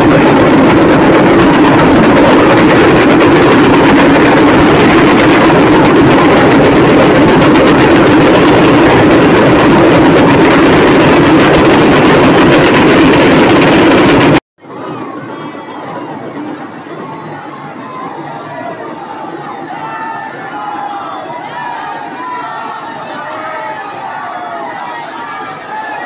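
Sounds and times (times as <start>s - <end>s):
huge crowd cheering and shouting: 14.6s - 26.0s.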